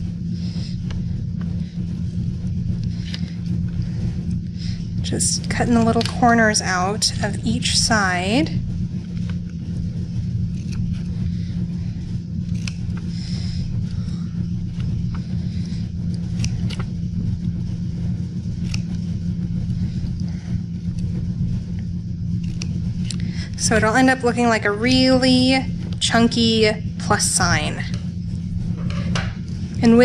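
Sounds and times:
steady low hum: 0.0 - 30.0
scissors snipping paper: 12.5 - 12.8.

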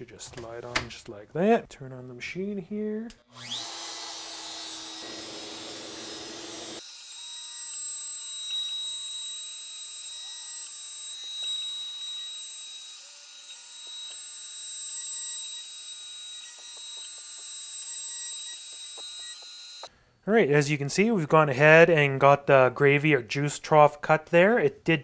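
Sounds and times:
shop vacuum: 3.3 - 7.5
router spindle whining: 3.3 - 19.9.

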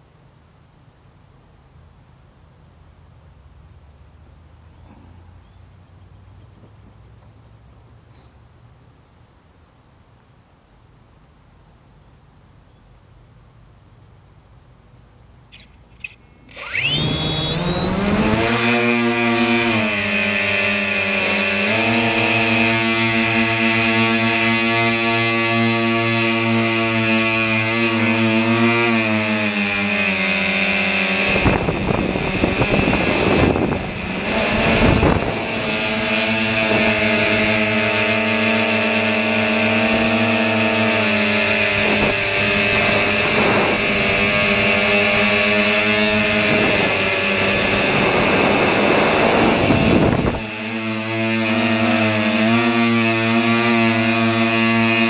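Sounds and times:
model aircraft motor whine: 16.4 - 55.0
rush of wind noise: 30.7 - 37.1, 41.8 - 44.6, 46.4 - 50.6.

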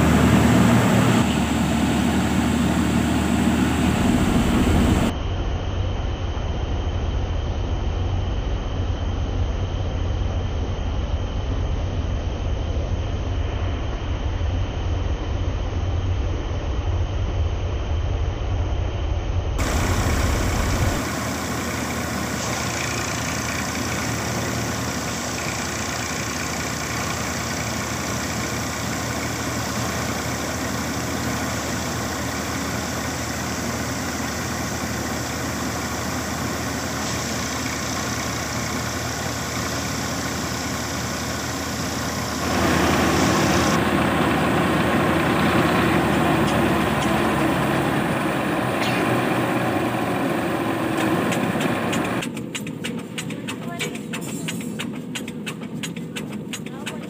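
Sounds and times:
paddy thresher running: 0.0 - 5.1, 19.6 - 57.0
tractor diesel engine: 0.0 - 5.2, 19.6 - 57.0.

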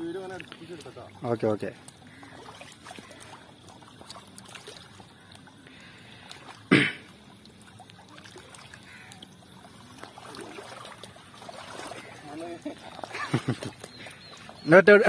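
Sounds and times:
water lapping at rocky bank: 0.0 - 15.0
loud splash: 10.2 - 12.2.

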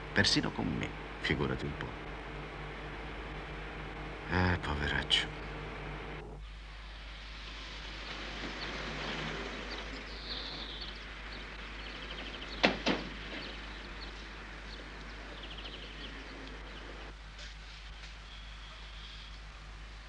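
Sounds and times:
birds chirping faintly: 0.0 - 17.2, 17.8 - 20.0
steady background hiss: 0.0 - 20.0
sharp knocks: 12.6 - 13.6.

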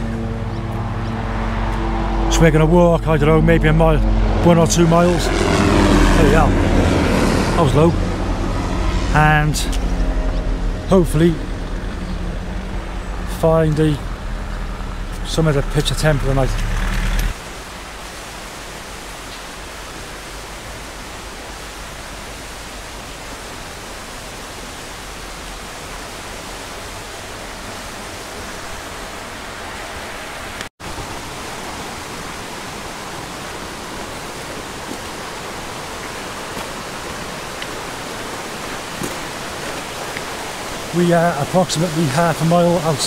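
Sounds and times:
mountain stream rushing: 0.0 - 43.0.

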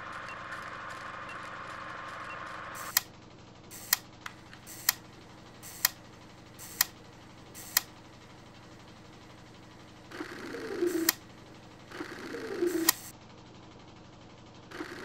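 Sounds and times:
faint steady hum: 0.0 - 13.2
sharp single clicks: 2.8 - 3.1, 5.7 - 6.0, 6.6 - 7.0, 7.6 - 7.9.

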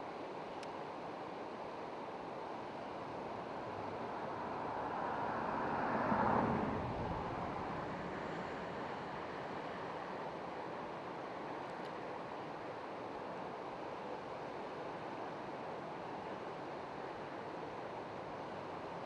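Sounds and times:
vehicle passing by: 4.4 - 9.4.

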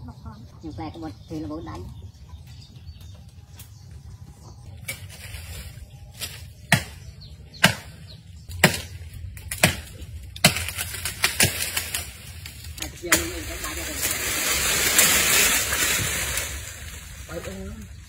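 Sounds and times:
blade chopping tree branches: 4.7 - 17.2.

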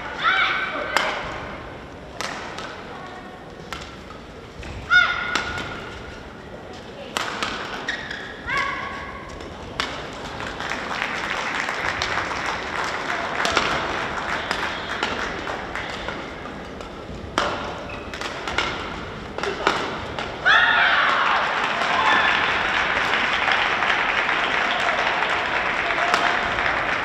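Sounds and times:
racket striking shuttlecock: 2.2 - 2.8, 5.0 - 6.1, 7.1 - 10.6, 12.9 - 20.5, 26.0 - 26.7
shoe squeaks on court: 7.8 - 8.4, 17.8 - 18.2
people clapping: 9.8 - 16.6, 20.9 - 27.0.

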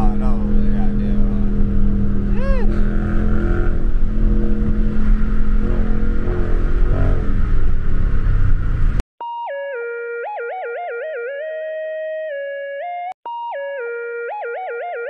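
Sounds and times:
car engine hum: 0.0 - 9.0
tyre and road rumble: 0.0 - 9.0.

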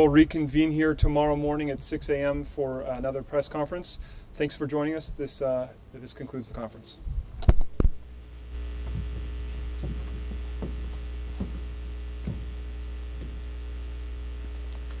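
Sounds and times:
steady low hum: 7.0 - 15.0
faint soft thuds: 8.8 - 13.6
knocks on microphone: 8.9 - 12.6.

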